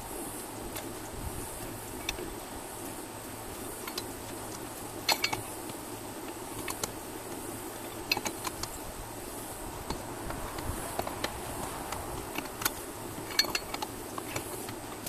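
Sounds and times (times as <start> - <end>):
lug wrench metal clinks: 5.0 - 5.5, 7.9 - 8.7, 12.2 - 15.0.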